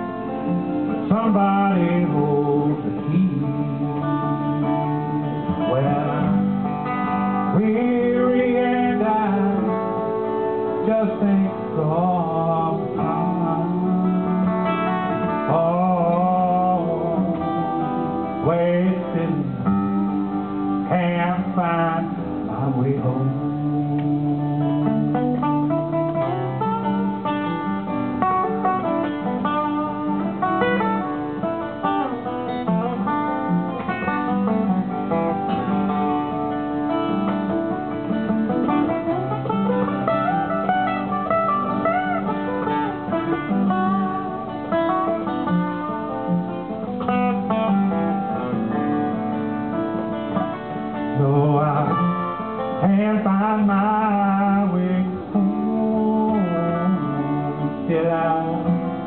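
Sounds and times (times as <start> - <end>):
man singing: 0.0 - 27.0, 50.9 - 59.0
acoustic guitars playing: 0.0 - 59.0.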